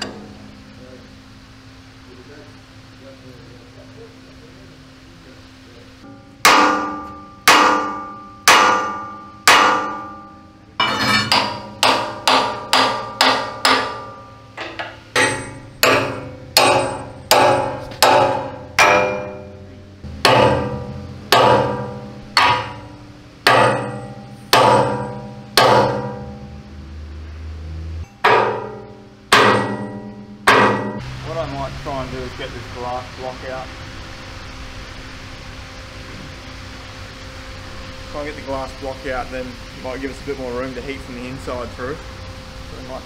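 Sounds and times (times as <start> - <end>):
hammer striking steel chisel: 6.0 - 26.6, 28.1 - 31.0.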